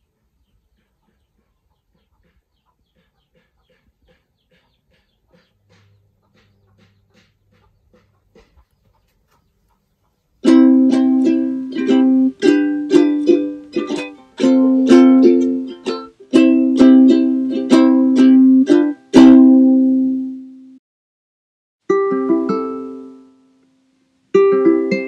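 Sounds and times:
ukulele strumming chords: 0:10.4 - 0:20.8, 0:21.8 - 0:25.0.

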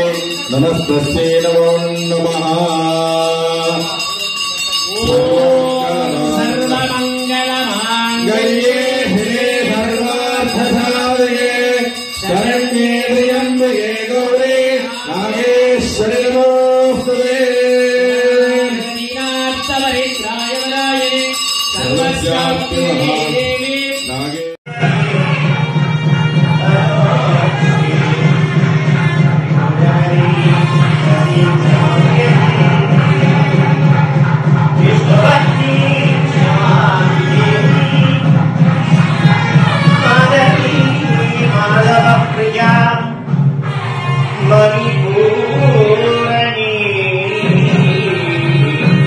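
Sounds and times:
man singing a chant: 0:00.0 - 0:25.8, 0:26.5 - 0:43.4, 0:44.2 - 0:49.0
musical accompaniment: 0:24.7 - 0:49.0.

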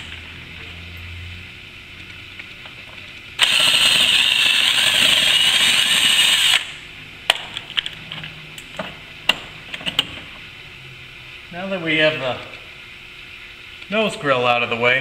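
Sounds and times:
cordless drill whining: 0:03.4 - 0:06.6.

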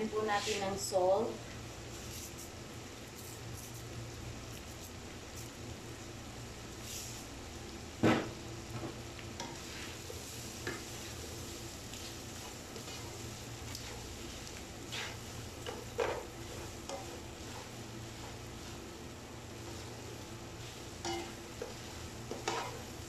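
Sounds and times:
food sizzling: 0:00.0 - 0:23.0
spatula scraping a wok: 0:09.4 - 0:23.0.

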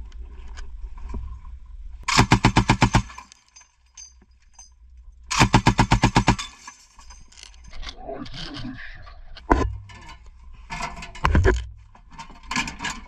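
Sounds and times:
machine gun bursts: 0:02.1 - 0:03.4, 0:05.3 - 0:06.7.

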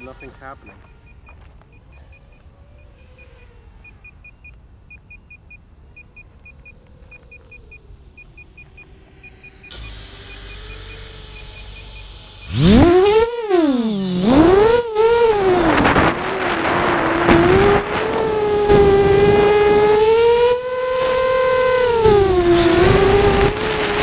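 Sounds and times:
drone motors and propellers whining: 0:00.0 - 0:24.0
drone short high beeps: 0:05.1 - 0:19.6.

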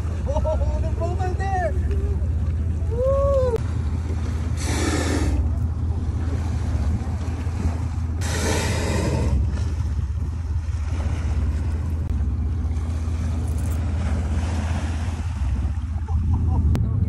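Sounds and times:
boat rumble: 0:00.0 - 0:17.0
whale blowing: 0:02.8 - 0:16.0.

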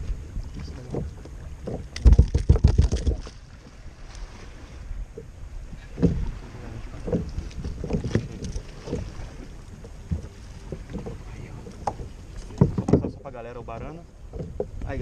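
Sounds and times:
wind rumble on microphone: 0:00.0 - 0:15.0
knocks against kayak hull: 0:00.8 - 0:03.4, 0:05.8 - 0:06.4, 0:07.0 - 0:09.2, 0:10.1 - 0:13.2.

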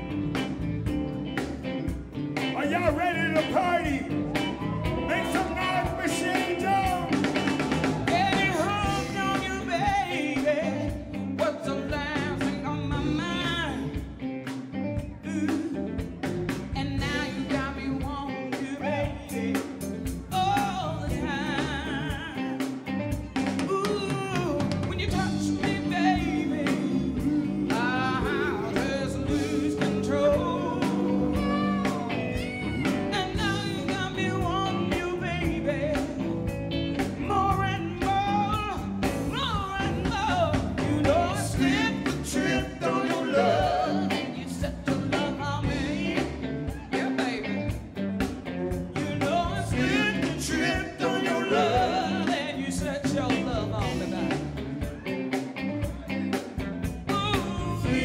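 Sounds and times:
rhythm and blues band playing: 0:00.0 - 0:58.0
woman singing: 0:16.8 - 0:19.6, 0:20.3 - 0:22.7, 0:23.6 - 0:36.2.

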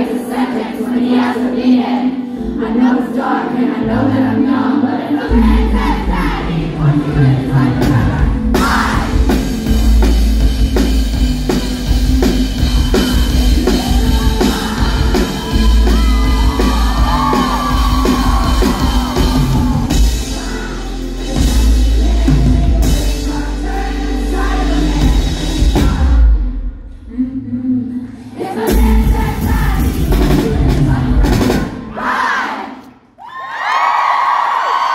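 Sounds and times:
crowd singing along and shouting: 0:00.0 - 0:10.1, 0:11.9 - 0:26.7, 0:28.2 - 0:33.1
live pop-rock band playing: 0:05.3 - 0:26.6, 0:28.6 - 0:32.0.

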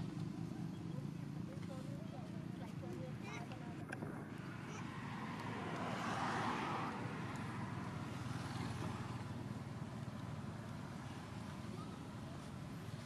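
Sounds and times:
traffic rumble: 0:00.0 - 0:13.0
vehicle passing by: 0:04.1 - 0:13.0.

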